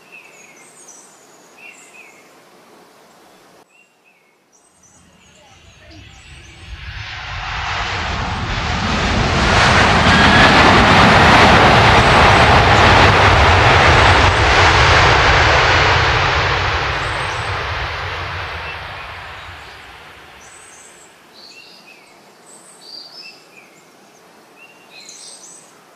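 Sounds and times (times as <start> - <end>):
birds chirping: 4.1 - 7.1, 18.5 - 21.7
aircraft engine rushing overhead: 4.9 - 21.1.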